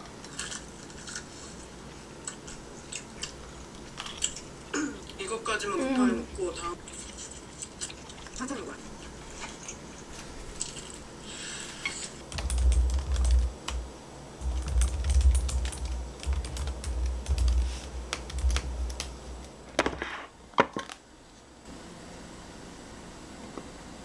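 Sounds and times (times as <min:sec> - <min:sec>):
laptop keyboard typing: 0:12.3 - 0:19.5.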